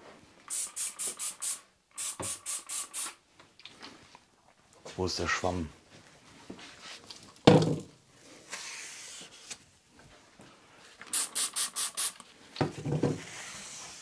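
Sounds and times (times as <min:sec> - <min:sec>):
spray bottle squirting: 0:00.5 - 0:03.2, 0:11.1 - 0:12.2.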